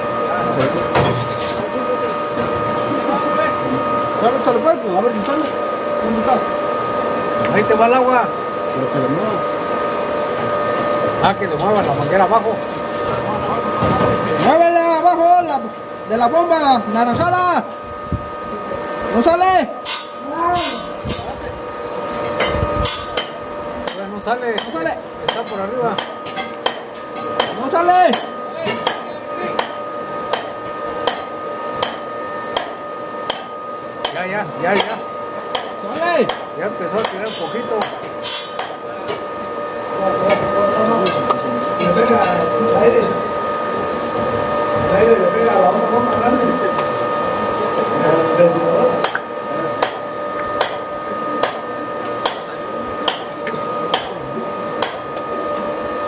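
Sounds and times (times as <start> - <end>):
hammer blows: 22.3 - 38.8
metallic knocks with bright ring: 22.3 - 38.8, 49.0 - 53.3, 53.9 - 54.2, 54.8 - 55.1.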